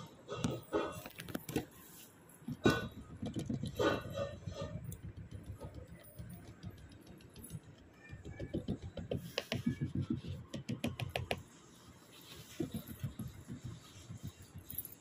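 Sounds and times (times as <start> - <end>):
turtle clicking on tiled floor: 2.5 - 11.4.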